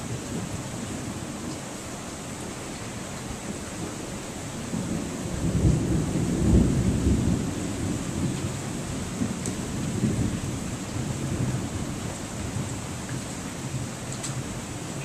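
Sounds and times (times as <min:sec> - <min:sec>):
steady rain: 0:00.0 - 0:15.0
thunder rolling: 0:04.7 - 0:12.8.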